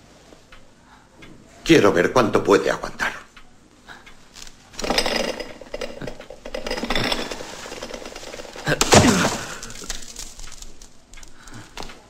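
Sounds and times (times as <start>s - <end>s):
scuffling and knocks: 6.6s - 12.0s.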